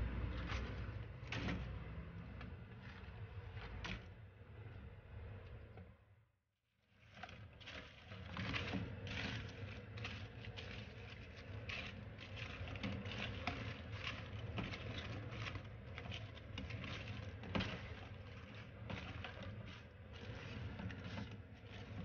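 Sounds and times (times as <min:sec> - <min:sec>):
spatula scraping a pan: 0:07.0 - 0:22.0.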